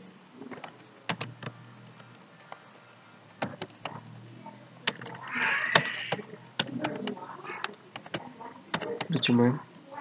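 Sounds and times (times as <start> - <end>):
keyboard keys clicking: 0.5 - 2.6, 4.8 - 9.2.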